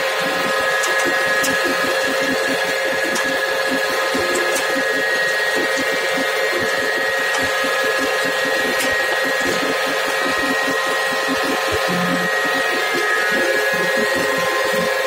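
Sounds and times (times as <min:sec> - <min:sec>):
grinding machine running: 0:00.0 - 0:15.0.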